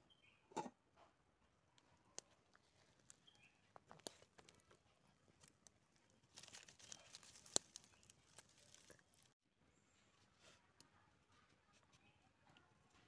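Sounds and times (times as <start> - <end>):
wood fire crackling and popping: 5.4 - 9.4.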